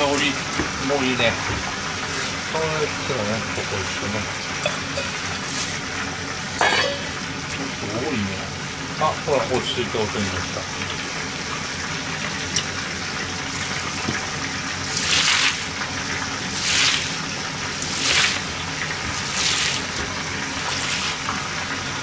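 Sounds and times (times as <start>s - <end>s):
cabbage rustling in a mesh colander: 14.9s - 15.7s, 16.5s - 17.2s, 17.8s - 21.3s.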